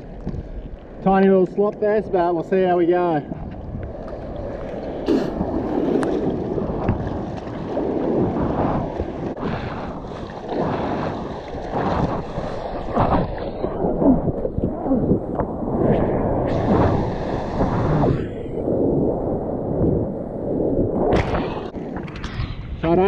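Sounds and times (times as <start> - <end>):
water sloshing from paddling: 4.0 - 14.8.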